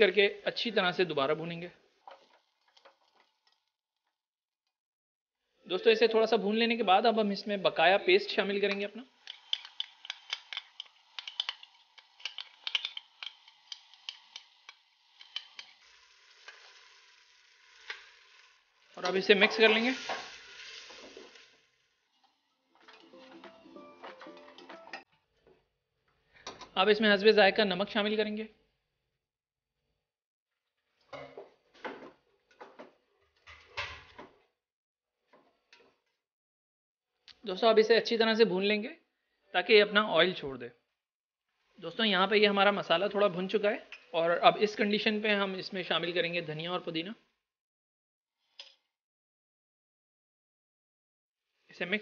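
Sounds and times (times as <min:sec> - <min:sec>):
faint sizzle: 0:08.3 - 0:24.7
metal spoon scraping and tapping bowl: 0:09.2 - 0:15.8.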